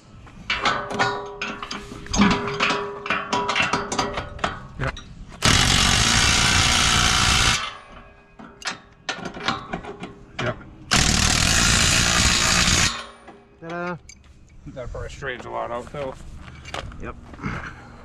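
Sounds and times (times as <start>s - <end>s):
impact driver running bolts: 5.4s - 7.7s, 10.9s - 13.2s.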